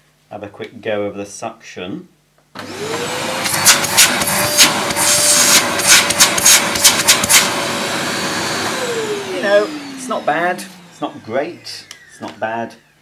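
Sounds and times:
vacuum cleaner motor whine: 0:02.6 - 0:13.0
vacuum hose pops and whooshes: 0:02.9 - 0:07.6.

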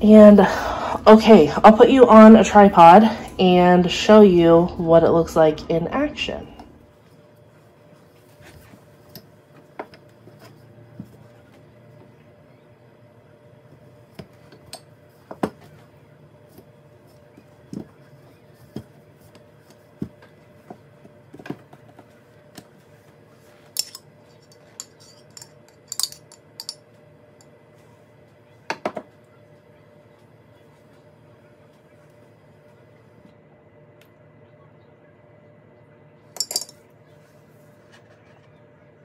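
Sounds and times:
steady low hum: 0:00.0 - 0:39.0
spoon clinking: 0:23.8 - 0:26.8, 0:36.4 - 0:36.8.

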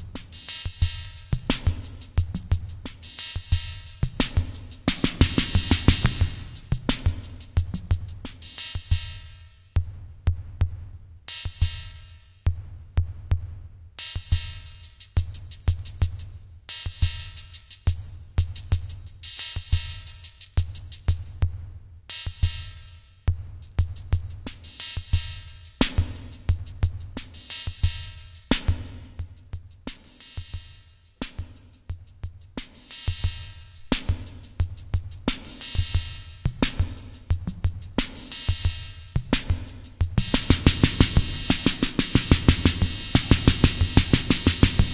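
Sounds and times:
hi-hat ticks: 0:00.0 - 0:09.8, 0:11.3 - 0:12.5, 0:14.0 - 0:44.9
kick drum pulses: 0:03.5 - 0:08.3, 0:33.2 - 0:44.9.

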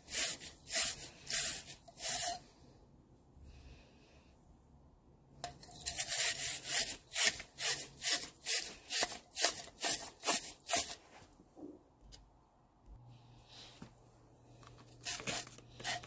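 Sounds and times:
wire brush scrubbing metal tube: 0:00.0 - 0:02.5, 0:05.5 - 0:11.0, 0:15.0 - 0:16.0.

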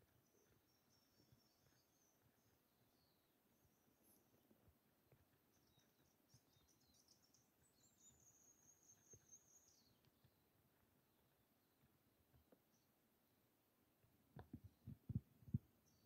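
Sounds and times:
faint high bird chirps: 0:00.0 - 0:10.8.

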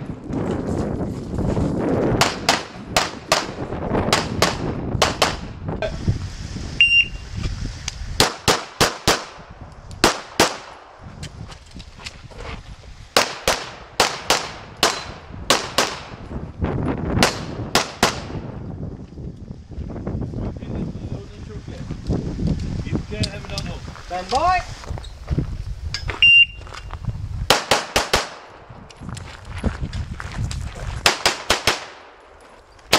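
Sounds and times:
short high beep: 0:06.8 - 0:07.2, 0:26.2 - 0:26.6
handgun shots: 0:13.2 - 0:16.1.

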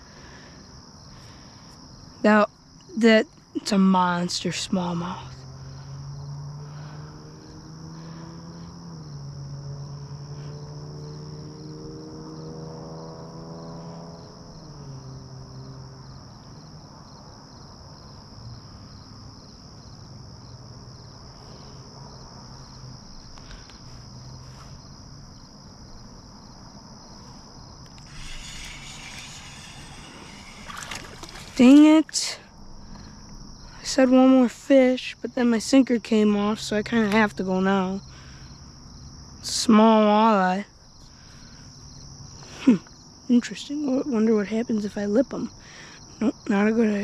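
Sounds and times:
high insect chorus: 0:00.0 - 0:47.0
low hum: 0:27.9 - 0:33.3.

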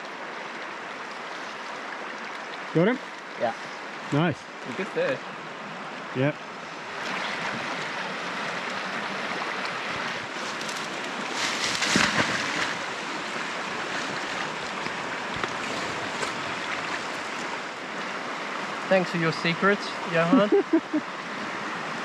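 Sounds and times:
river rushing over riffle: 0:00.0 - 0:22.0.

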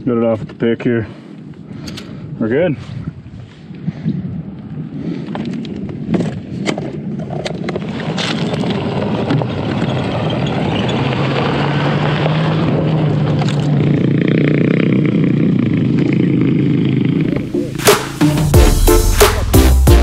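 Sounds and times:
motorcycle engine running: 0:13.0 - 0:18.6
rough rush of noise: 0:17.0 - 0:20.0.

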